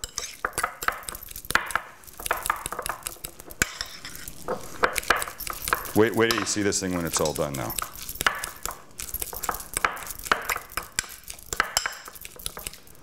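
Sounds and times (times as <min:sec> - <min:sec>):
metal utensil scraping ceramic bowl: 0:00.0 - 0:01.2, 0:02.9 - 0:12.8.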